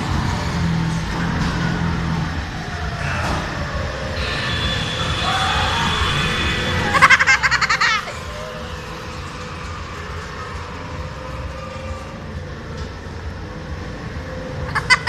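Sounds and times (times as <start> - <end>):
ride car rumbling on track: 0.0 - 15.0
high-pitched voices: 2.9 - 10.0.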